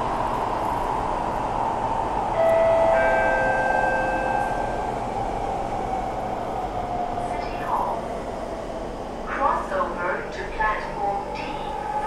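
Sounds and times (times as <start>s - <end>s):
train running steady rush: 0.0s - 12.0s
two-note chime: 2.4s - 4.6s.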